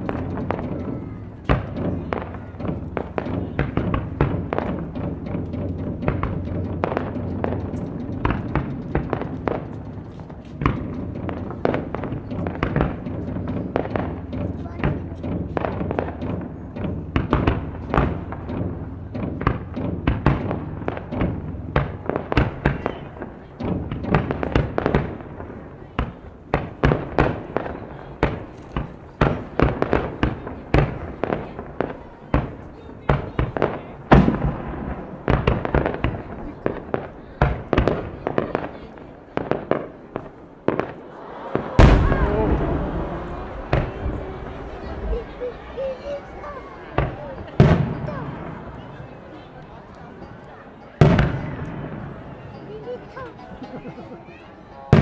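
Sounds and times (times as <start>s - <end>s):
taiko drumming: 0.0s - 10.0s, 10.6s - 36.2s, 41.8s - 48.0s
fireworks popping: 0.0s - 53.0s
firework shells bursting: 40.2s - 47.9s.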